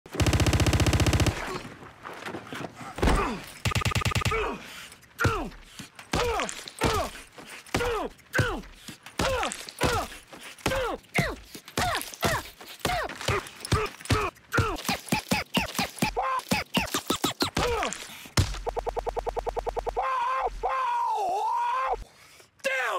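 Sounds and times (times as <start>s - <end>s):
punch hits with groans: 3.0s - 3.5s, 5.2s - 18.7s.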